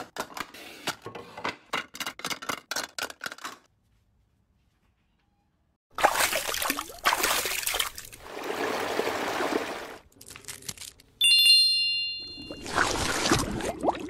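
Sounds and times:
bright chime: 11.2s - 12.7s.

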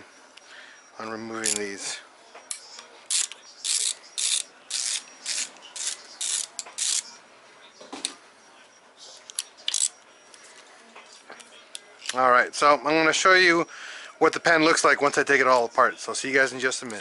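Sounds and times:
ratchet wrench ratcheting: 3.1s - 7.0s.

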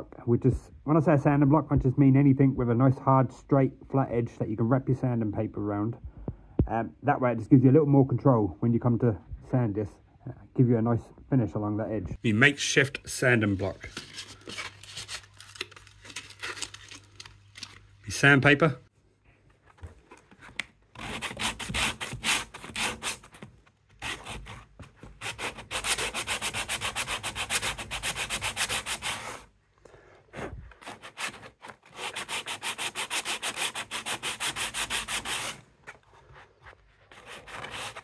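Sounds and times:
sandpaper sanding wood filler: 25.2s - 29.5s, 30.9s - 35.6s, 37.1s - 38.0s.

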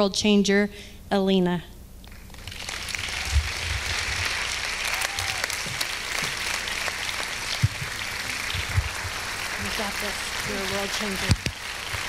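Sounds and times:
audience applauding: 2.1s - 12.0s
low thumps: 3.1s - 4.3s, 7.5s - 9.3s.

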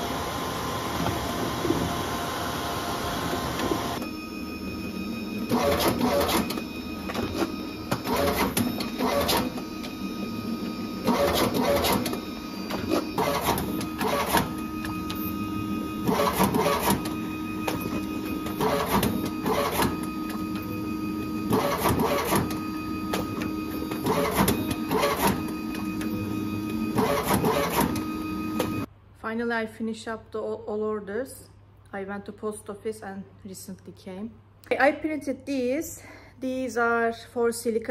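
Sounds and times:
motor hum: 0.0s - 28.9s
paper cutter clattering cuts: 21.5s - 22.6s, 23.2s - 25.9s.

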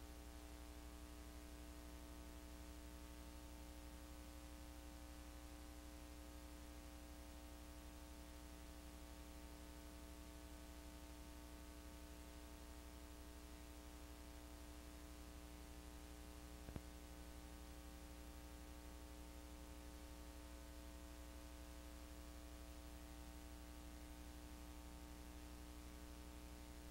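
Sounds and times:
faint electrical hum with hiss: 0.0s - 26.9s
small click: 16.6s - 16.9s.

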